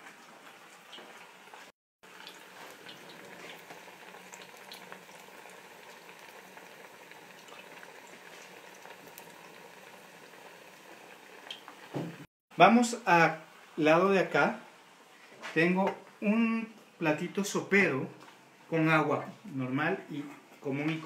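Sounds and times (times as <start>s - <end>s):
plantain frying in hot oil: 0.0s - 12.3s.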